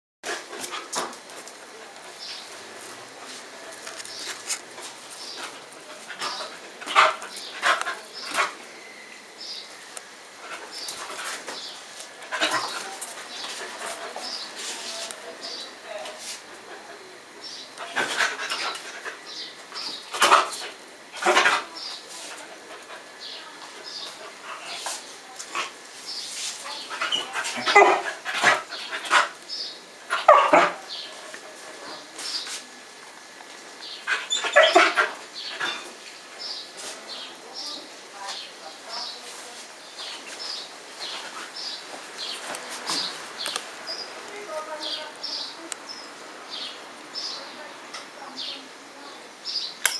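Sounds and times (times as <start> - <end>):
puppies barking: 27.2 - 29.4, 30.1 - 31.0, 34.1 - 35.8.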